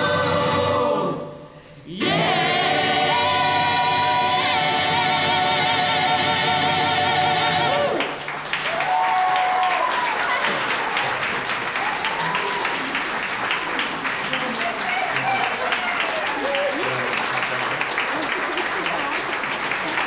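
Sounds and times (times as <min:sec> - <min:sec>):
audience applause: 0:07.7 - 0:20.0
people cheering: 0:07.8 - 0:20.0.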